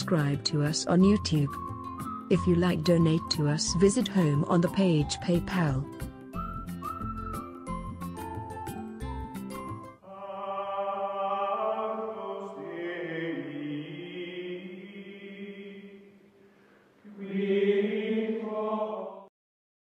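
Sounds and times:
choir-like chanting voices: 10.0 - 16.2, 17.0 - 19.3.

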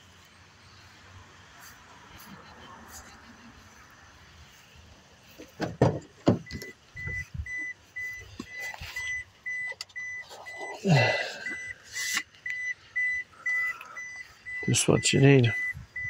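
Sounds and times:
rustling and shifting: 0.0 - 16.0
thumps: 5.4 - 7.2
car warning chime beeping: 6.3 - 16.0.

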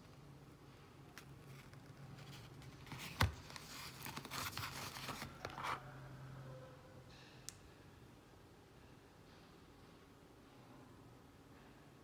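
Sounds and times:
box rustling and scraping: 1.4 - 5.9.

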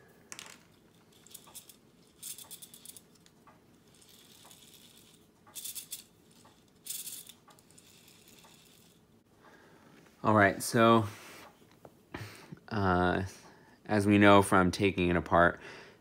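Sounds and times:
small metal parts clicking and rattling: 0.3 - 9.1.

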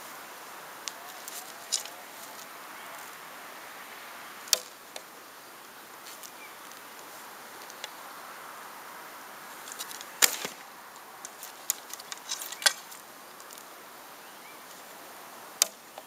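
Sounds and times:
wooden arrows clicking and knocking: 0.8 - 3.1, 4.4 - 5.1, 7.6 - 8.0, 9.6 - 13.7, 15.6 - 16.0.

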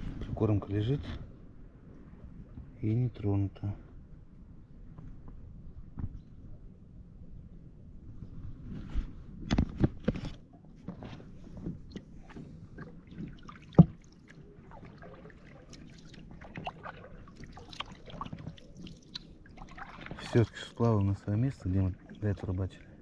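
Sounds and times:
water sloshing and trickling: 9.7 - 23.0.

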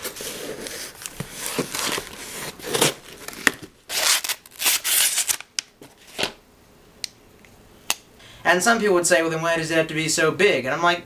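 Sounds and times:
cardboard tearing: 0.0 - 5.5
knife slitting packing tape: 2.6 - 5.5.

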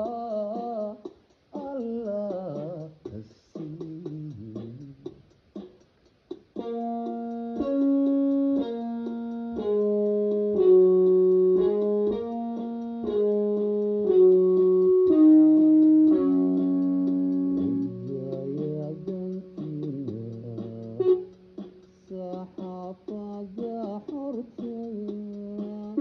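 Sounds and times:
person singing: 0.0 - 5.2, 14.0 - 21.4, 22.0 - 26.0
electronic keyboard playing: 5.6 - 26.0.

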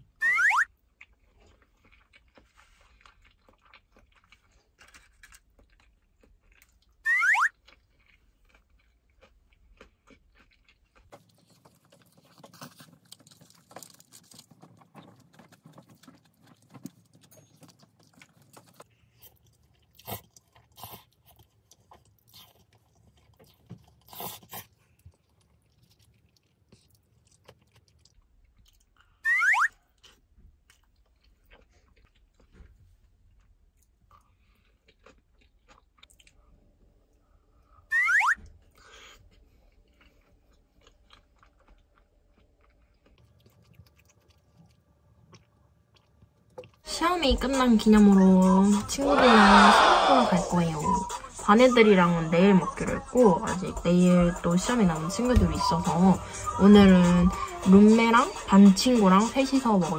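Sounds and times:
descending whistle sound effect: 0.2 - 0.7, 7.1 - 7.5, 29.2 - 29.7, 37.9 - 38.4.

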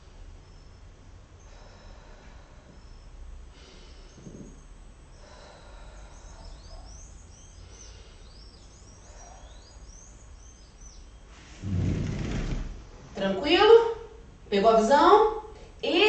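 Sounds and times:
low steady hum: 0.0 - 16.0
birds chirping: 2.5 - 13.6.

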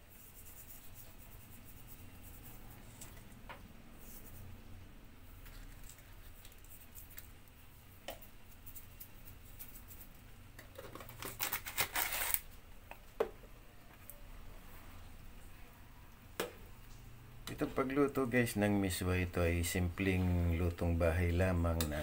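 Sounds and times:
crackly rustling: 8.4 - 13.2.

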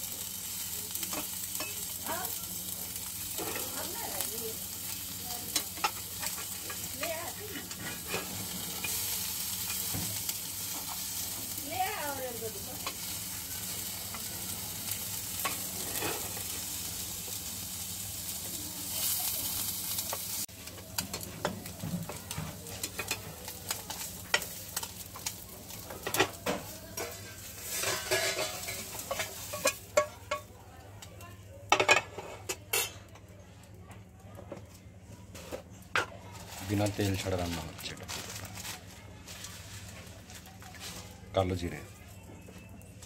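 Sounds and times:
fish sizzling in a pan: 0.0 - 33.1, 35.2 - 41.8
metal spatula scraping a pan: 3.3 - 4.0, 5.5 - 10.0, 15.4 - 16.5, 26.0 - 30.4.

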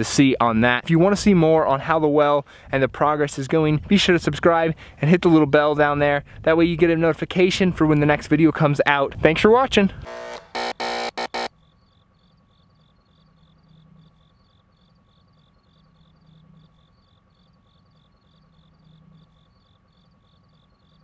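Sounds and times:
cricket chirping: 11.5 - 21.0.

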